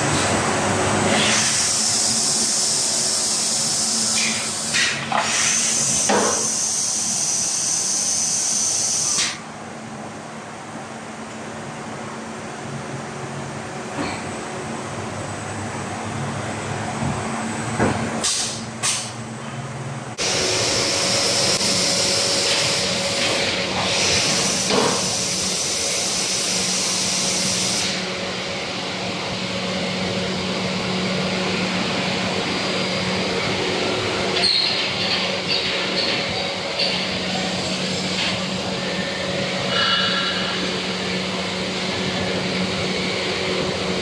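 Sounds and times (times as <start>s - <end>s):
loud hiss: 20.2s - 28.0s.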